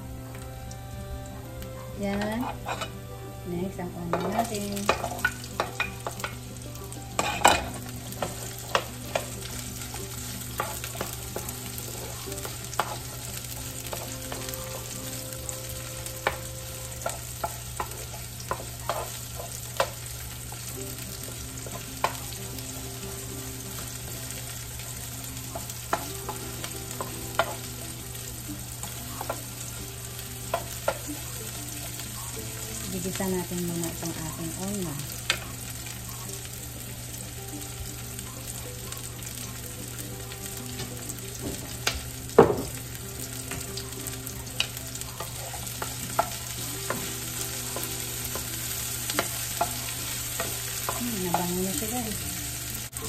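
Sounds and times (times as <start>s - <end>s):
onion and garlic sizzling in oil: 0.0s - 53.0s
knock on pan: 41.4s - 41.7s, 42.3s - 42.8s.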